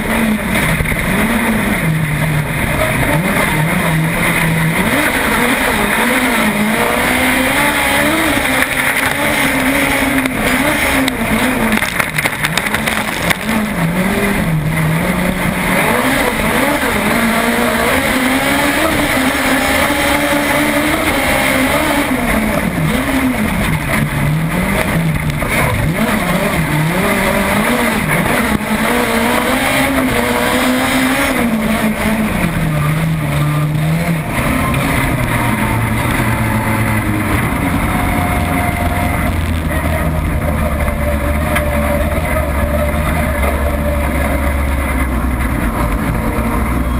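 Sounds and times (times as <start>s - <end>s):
car engine revving: 0.0s - 46.9s.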